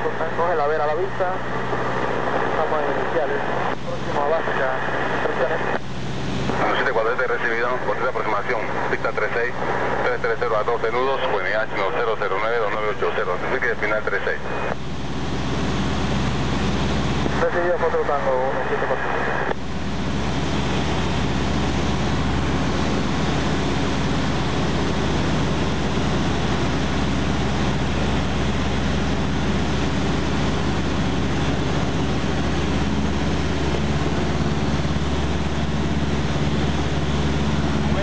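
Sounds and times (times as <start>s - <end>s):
airplane engine drone: 0.0s - 38.0s
airflow noise: 12.8s - 38.0s.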